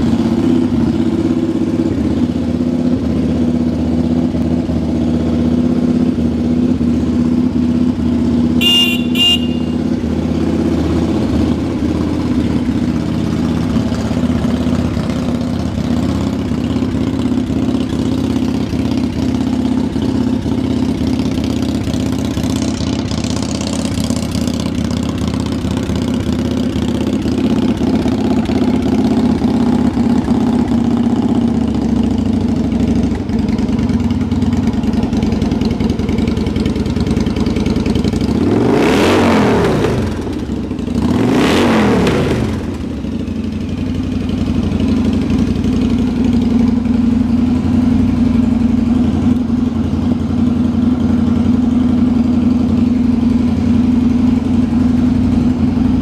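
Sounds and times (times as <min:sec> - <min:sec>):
motorcycle engine idling: 0:00.0 - 0:56.0
short high beeps: 0:08.6 - 0:09.8.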